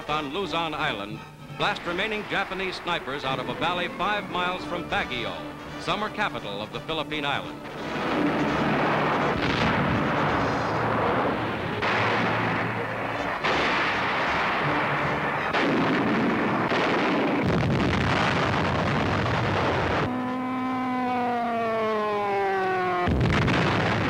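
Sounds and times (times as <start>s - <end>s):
shell explosions: 1.6s - 5.3s, 7.6s - 20.1s, 23.0s - 24.0s
tank guns and artillery firing: 1.6s - 5.3s, 7.6s - 20.1s, 23.0s - 24.0s
falling whine: 7.6s - 24.0s.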